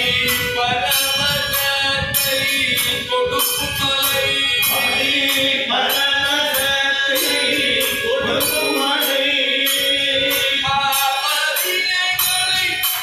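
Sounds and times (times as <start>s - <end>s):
harmonium chords: 0.0s - 13.0s
jingling percussion: 0.0s - 13.0s
group devotional singing: 3.7s - 12.6s.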